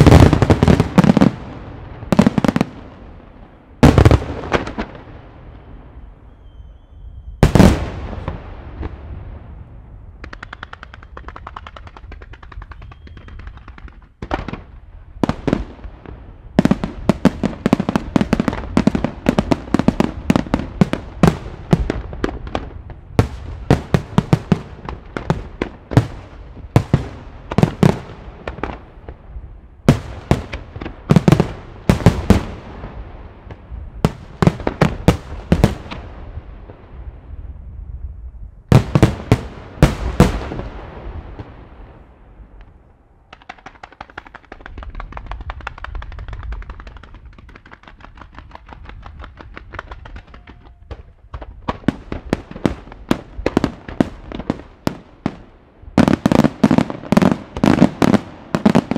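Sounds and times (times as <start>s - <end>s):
rapid small pops: 10.2s - 14.4s, 43.3s - 51.8s
fireworks shells bursting: 10.2s - 14.6s.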